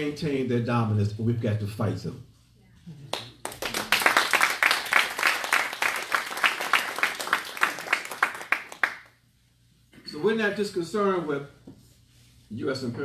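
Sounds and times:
audience applauding: 0:03.1 - 0:09.1.

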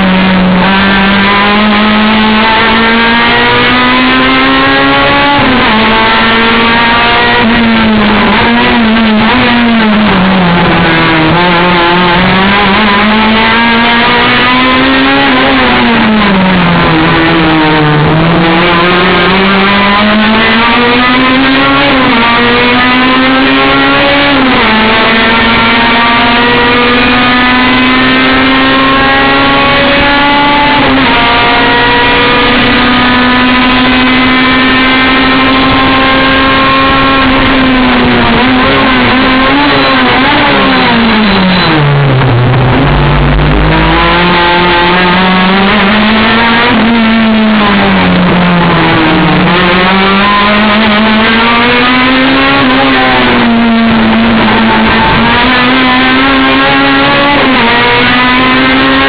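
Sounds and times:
racing car engine revving: 0:00.0 - 0:59.0.

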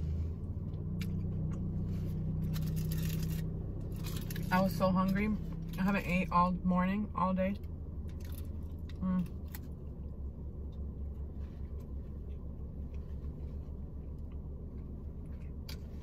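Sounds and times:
car engine idling: 0:00.0 - 0:16.0
chewing and mouth smacks: 0:00.7 - 0:04.5, 0:07.6 - 0:10.1, 0:11.6 - 0:16.0.

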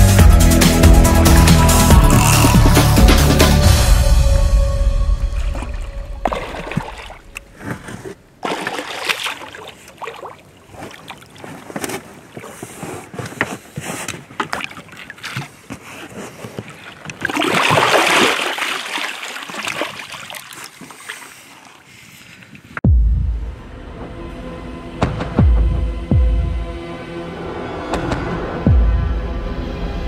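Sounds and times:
water splashing: 0:02.1 - 0:22.8.

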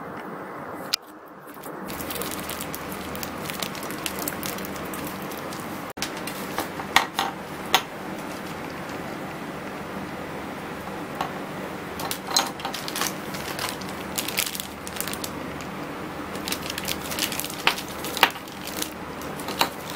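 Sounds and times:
plastic packaging crinkling: 0:01.4 - 0:07.3, 0:12.0 - 0:19.9
packaging and box clicks: 0:01.6 - 0:06.7, 0:12.0 - 0:15.7, 0:16.4 - 0:19.9.

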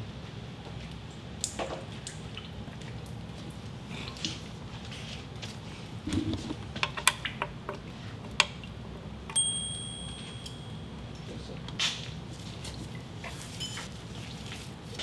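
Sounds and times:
light clicks and clinks: 0:09.3 - 0:11.8
bright ringing chime: 0:09.4 - 0:11.0.

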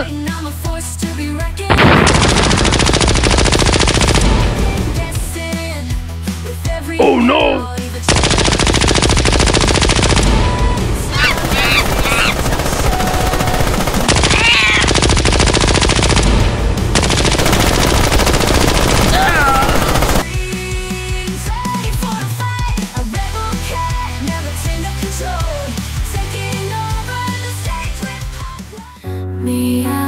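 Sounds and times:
background music: 0:00.0 - 0:30.0
rapid machine-gun fire: 0:01.7 - 0:05.3, 0:08.1 - 0:20.4.

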